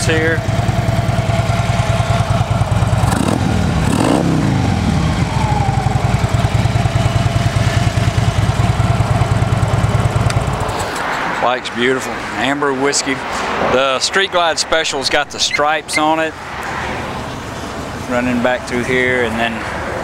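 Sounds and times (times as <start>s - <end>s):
motorcycle engine idling: 0.0s - 10.8s.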